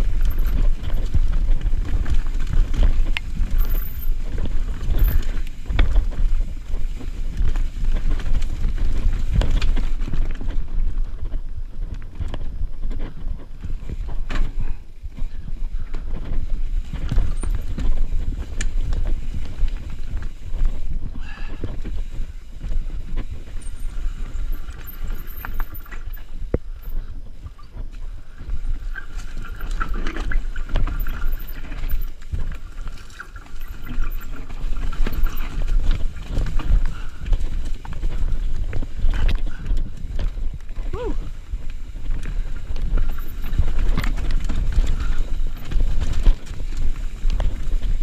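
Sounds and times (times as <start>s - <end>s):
bike knocks and clatters: 0.0s - 22.1s.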